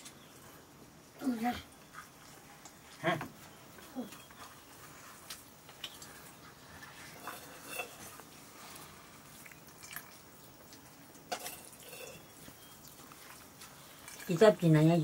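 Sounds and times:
soft eating sounds: 0.0 - 15.0
steel bowls and ladle clinking: 7.0 - 8.3, 11.1 - 12.6.

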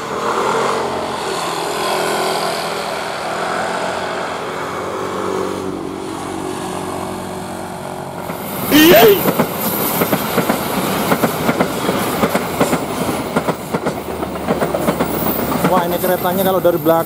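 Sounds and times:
motorcycles passing: 0.0 - 11.0.

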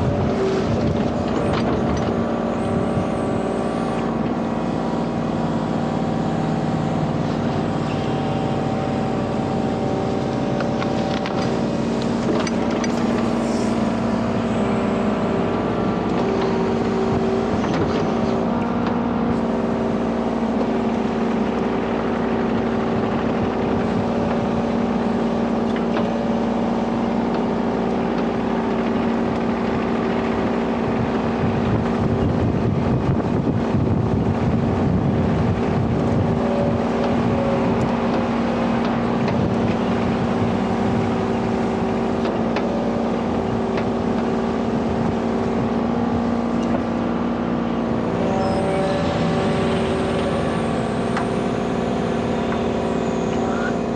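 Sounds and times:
excavator diesel engine running: 0.0 - 53.9
clicks and crackles of cut reeds: 10.0 - 13.9.

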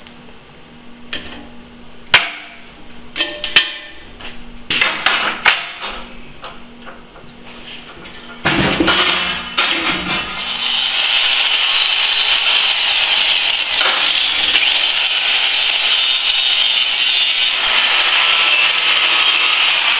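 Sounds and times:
metal clanks and knocks: 3.2 - 4.0, 4.7 - 7.3, 7.9 - 10.4
plasma cutter hissing: 9.6 - 19.9.

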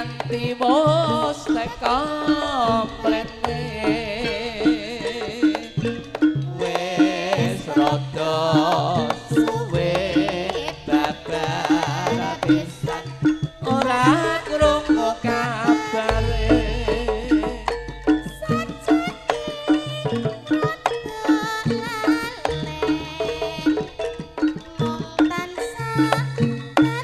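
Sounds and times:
gamelan ensemble playing: 0.0 - 27.0
hand drums rhythm: 0.0 - 27.0
ornamented melody line: 9.8 - 22.4
bronze gongs: 14.6 - 20.0.

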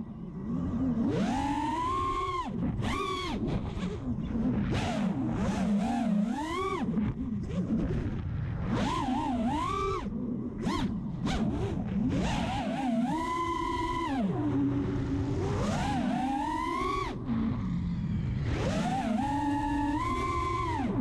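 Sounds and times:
quadcopter motors whining: 0.0 - 21.0.

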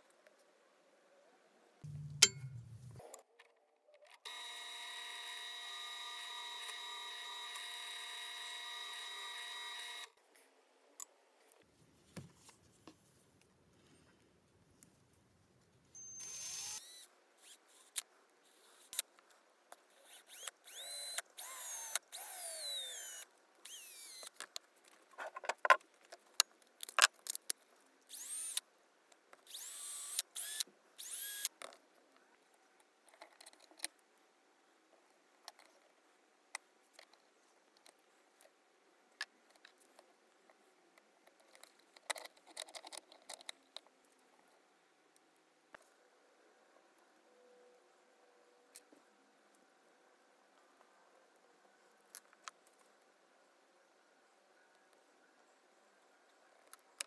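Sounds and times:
small drill whining: 4.2 - 10.1, 16.0 - 18.0, 20.0 - 24.3, 28.1 - 28.6, 29.5 - 31.5.

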